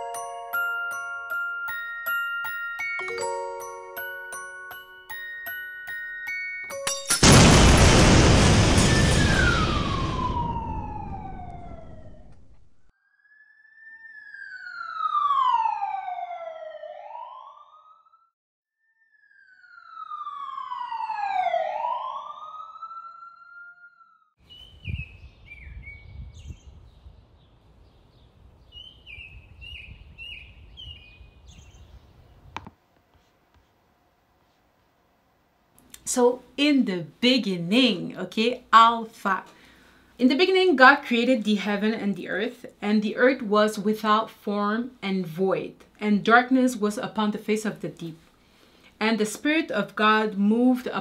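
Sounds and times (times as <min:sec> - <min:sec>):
explosion boom: 0:07.2 - 0:12.6
crackle: 0:07.2 - 0:12.9
swooping siren-like glides: 0:09.0 - 0:24.4.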